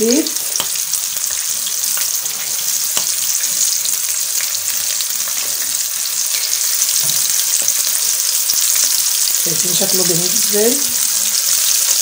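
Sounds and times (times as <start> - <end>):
shrimp sizzling in hot oil: 0.0 - 12.0.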